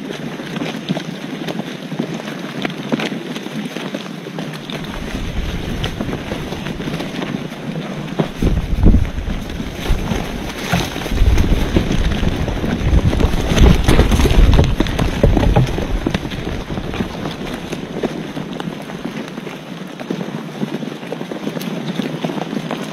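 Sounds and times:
wind buffeting microphone: 4.4s - 20.2s.

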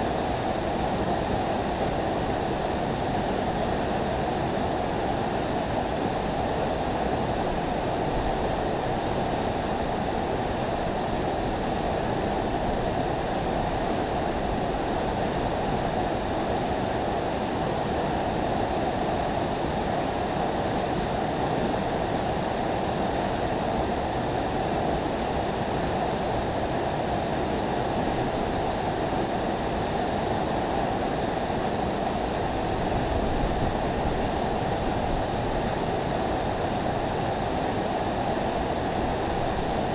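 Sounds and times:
river water rushing through spillway: 0.0s - 39.9s.

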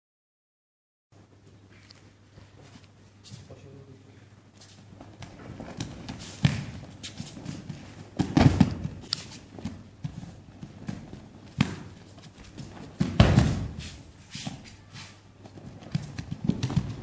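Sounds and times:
slaps and footfalls on mat: 4.7s - 17.0s
heavy thuds of bodies on mats: 5.0s - 14.6s, 15.4s - 17.0s.

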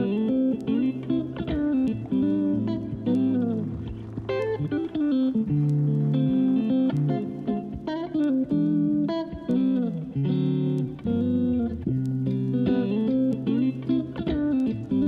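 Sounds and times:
plucked guitar melody: 0.0s - 15.0s.

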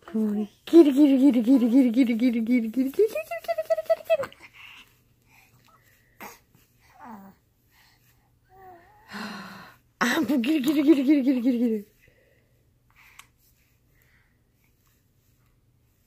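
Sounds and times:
woman's wavering wordless voice: 0.0s - 4.4s, 10.0s - 11.9s.

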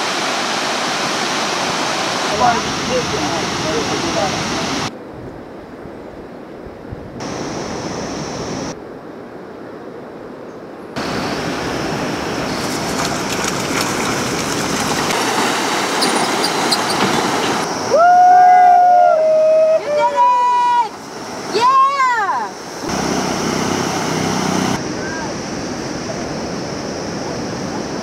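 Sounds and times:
outdoor hiss: 7.2s - 8.8s, 11.0s - 24.8s
bike tyres crunching on gravel: 12.5s - 17.4s
person shouting: 17.9s - 20.9s.

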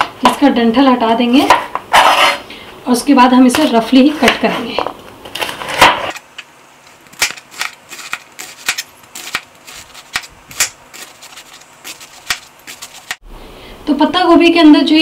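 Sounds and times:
knife chopping cabbage on board: 7.2s - 13.2s.

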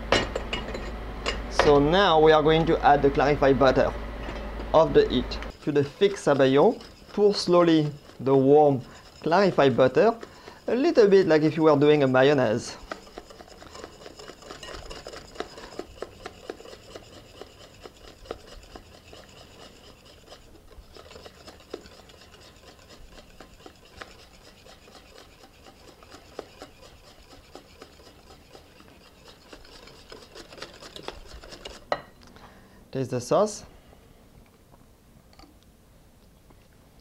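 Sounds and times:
whisk clicking against glass bowl: 12.6s - 31.8s.

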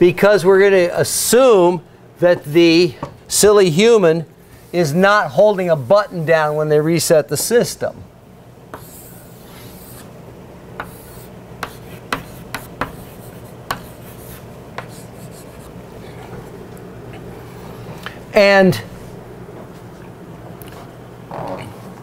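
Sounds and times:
chalk scratching on blackboard: 8.7s - 10.1s, 10.8s - 15.8s.

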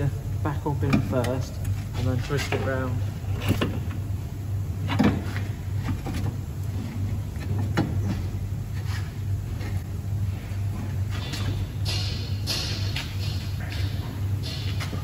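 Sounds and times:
steady low hum: 0.0s - 15.0s
metal clunks and knocks: 11.1s - 15.0s.

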